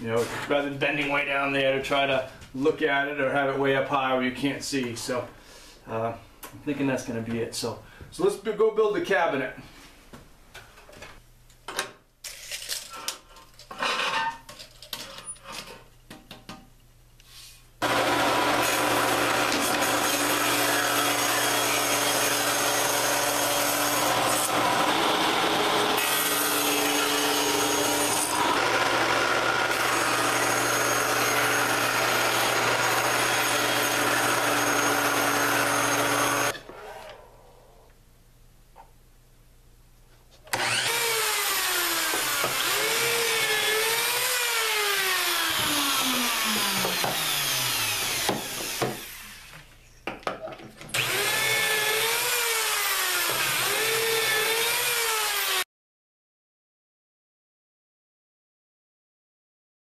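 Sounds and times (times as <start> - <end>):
table saw cutting wood: 17.8 - 37.3, 40.5 - 49.6, 50.9 - 55.7.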